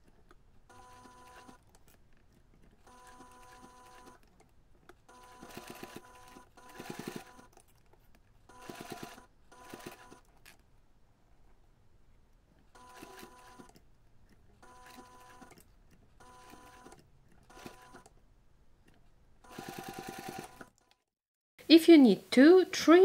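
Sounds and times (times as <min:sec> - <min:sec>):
sewing machine stitching: 0:00.0 - 0:07.8, 0:08.4 - 0:10.6, 0:12.7 - 0:18.2, 0:19.4 - 0:21.0.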